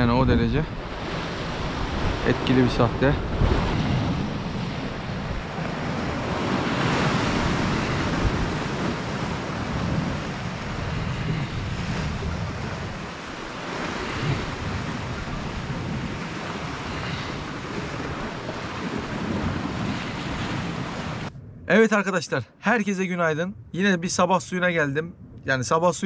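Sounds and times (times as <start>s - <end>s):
wind buffeting microphone: 0.0s - 22.2s, 23.2s - 26.0s
waves breaking on rocks: 0.8s - 21.3s.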